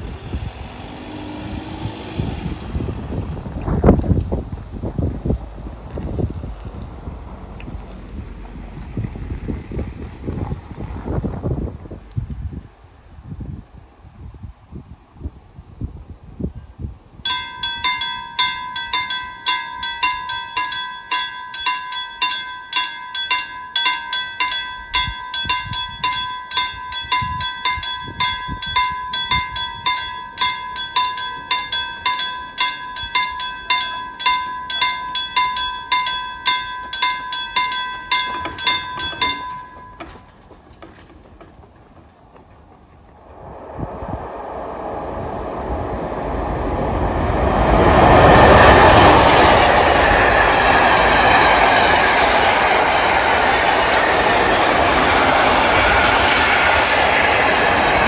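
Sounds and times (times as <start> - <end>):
wind on microphone: 0.0 - 19.0, 24.8 - 33.5, 43.2 - 52.4
level crossing warning bell: 17.3 - 41.0, 45.4 - 58.0.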